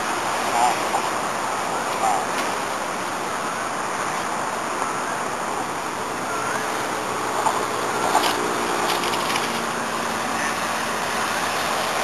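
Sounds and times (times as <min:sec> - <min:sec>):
model plane motor hum: 0:04.9 - 0:12.0.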